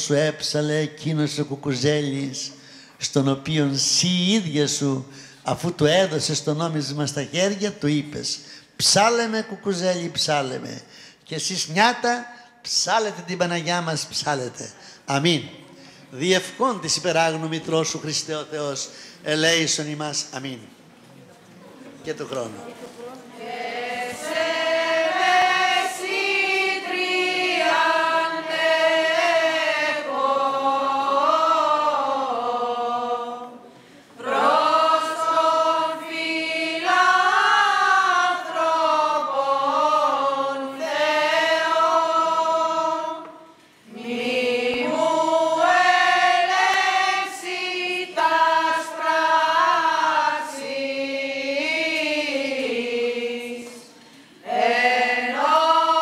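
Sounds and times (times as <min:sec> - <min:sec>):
women chanting a hymn: 0:23.0 - 0:56.0.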